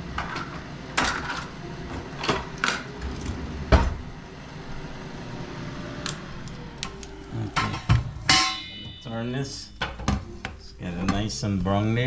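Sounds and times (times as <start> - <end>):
utensils clattering in a drawer: 0.2 - 1.5.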